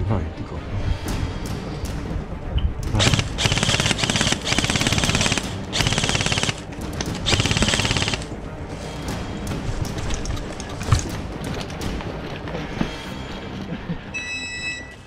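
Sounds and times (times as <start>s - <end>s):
airsoft rifle firing full-auto: 3.0s - 6.7s, 7.3s - 8.3s.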